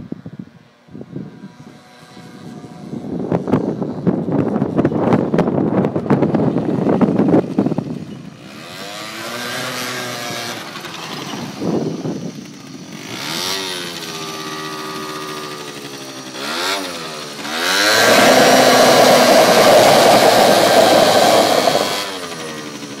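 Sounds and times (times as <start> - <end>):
small vehicle engine revving: 8.3 - 23.0.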